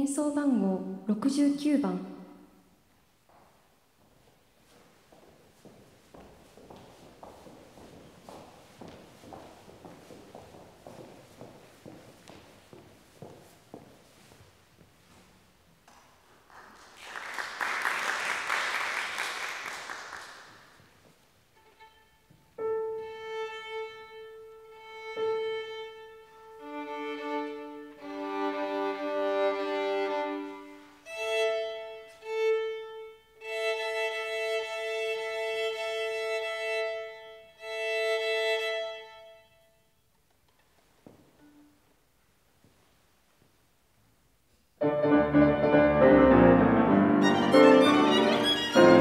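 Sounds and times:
audience applause: 0:16.3 - 0:20.8
violin being tuned: 0:21.4 - 0:39.8, 0:41.1 - 0:42.0, 0:46.9 - 0:49.0.

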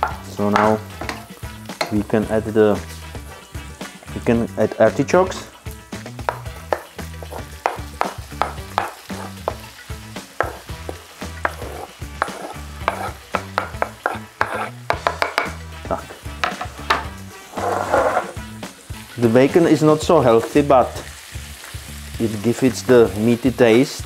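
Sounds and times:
background music with beat: 0:00.0 - 0:19.7
bacon sizzling in a frying pan: 0:00.0 - 0:24.0
wooden spatula scraping board: 0:07.2 - 0:08.1, 0:08.8 - 0:09.5, 0:10.4 - 0:15.4, 0:16.5 - 0:18.4.

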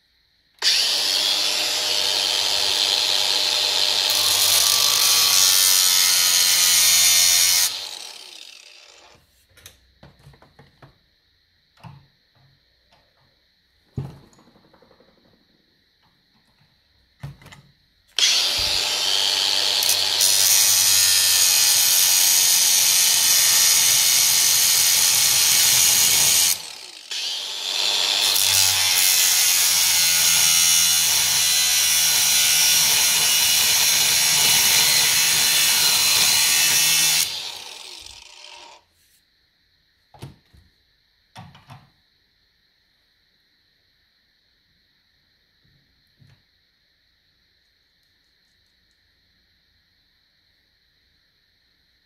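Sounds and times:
angle grinder cutting steel: 0:00.6 - 0:09.2, 0:18.2 - 0:38.8.

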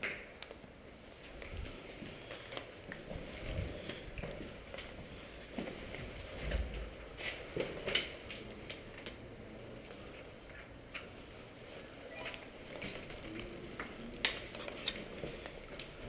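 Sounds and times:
clothing rustling: 0:01.2 - 0:08.3.

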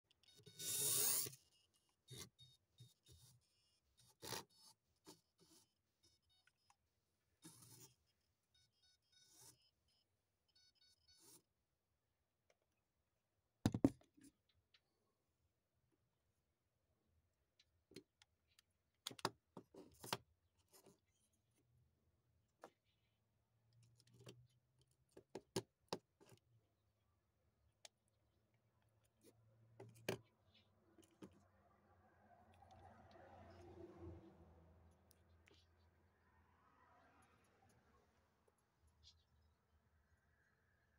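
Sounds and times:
toy car motor whirring: 0:00.2 - 0:06.4, 0:07.4 - 0:08.0.

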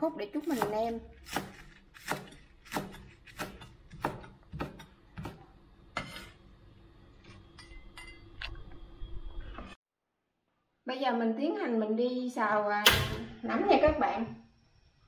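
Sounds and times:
cleaver chopping on wooden board: 0:00.6 - 0:05.4.

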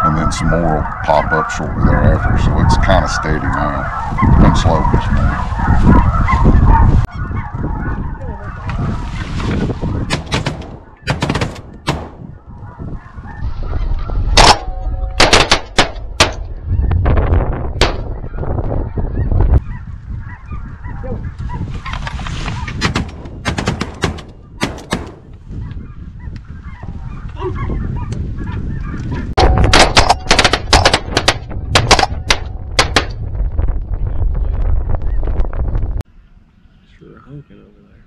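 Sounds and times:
snow geese honking: 0:00.0 - 0:10.1, 0:12.2 - 0:15.2, 0:18.1 - 0:22.8, 0:25.3 - 0:28.1
shotgun fire: 0:10.1 - 0:12.3, 0:15.2 - 0:16.4, 0:22.8 - 0:25.3, 0:29.7 - 0:33.2.

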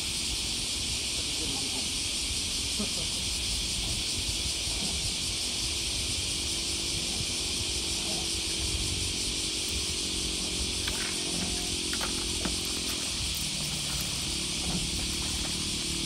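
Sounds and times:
steady high hiss: 0:00.0 - 0:16.0.

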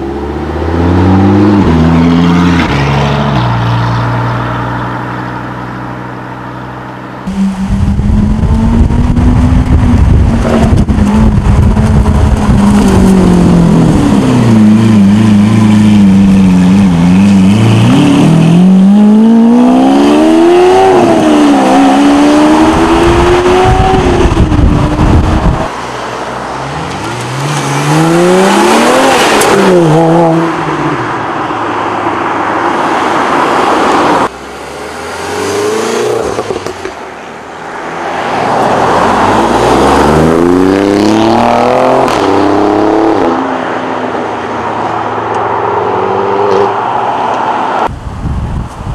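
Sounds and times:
car engines accelerating through gears: 0:07.2 - 0:25.7, 0:26.6 - 0:31.0, 0:38.2 - 0:43.8.

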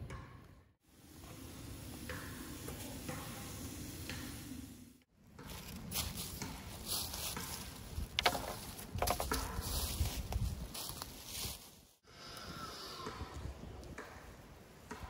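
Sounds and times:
dry leaves and sticks crunching: 0:05.4 - 0:12.0.

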